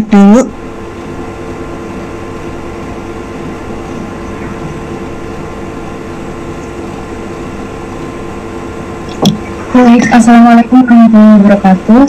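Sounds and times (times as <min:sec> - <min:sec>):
mechanical hum and rumble: 0:00.0 - 0:12.0.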